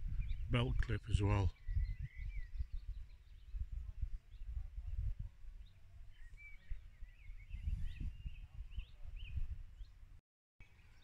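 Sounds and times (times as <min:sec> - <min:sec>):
wind buffeting microphone: 0:00.0 - 0:10.2
birds chirping: 0:00.0 - 0:11.0.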